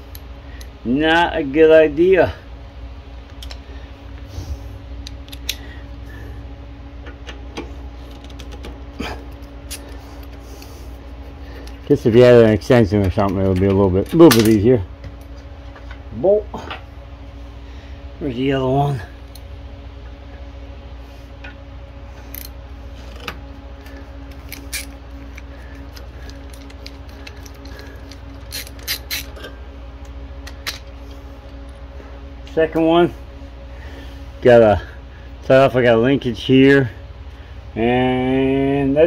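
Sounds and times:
low hum: 0.0s - 39.0s
ratchet clicking on metal: 27.4s - 29.3s.

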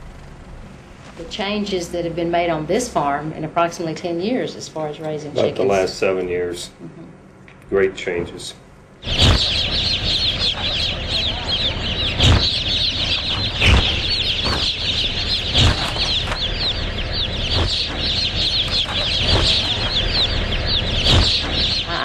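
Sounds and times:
chicks peeping: 9.0s - 22.0s
dull thumps: 12.1s - 16.5s.

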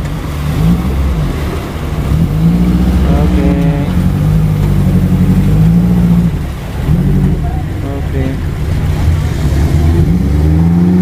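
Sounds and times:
vehicle engine revving under load: 0.0s - 11.0s.

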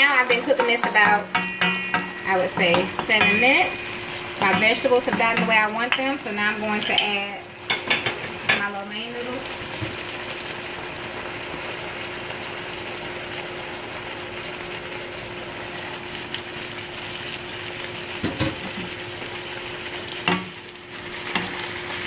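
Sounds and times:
food sizzling in a wok: 0.0s - 22.0s.

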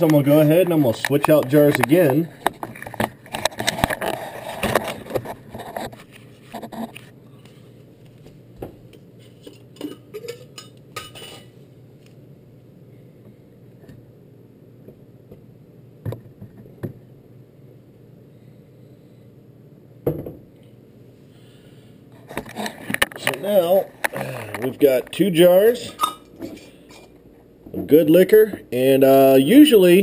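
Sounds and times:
faint steady hum: 0.0s - 30.0s
glass jars clinking: 25.9s - 26.3s.

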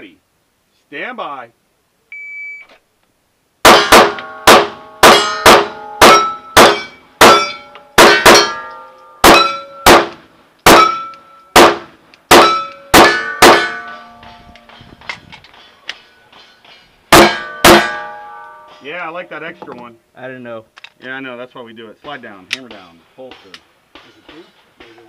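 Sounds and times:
pistol shots: 3.6s - 13.9s, 17.1s - 18.1s
steel plate ringing clang: 3.7s - 14.6s, 16.3s - 18.9s.

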